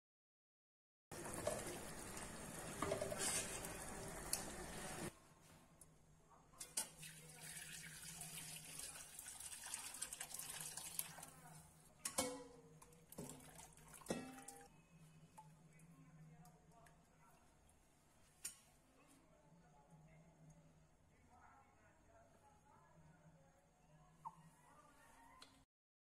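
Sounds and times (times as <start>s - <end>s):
liquid pouring through a strainer: 6.9s - 11.4s, 13.1s - 14.7s
broth bubbling in a pot: 6.9s - 11.5s, 12.8s - 14.7s.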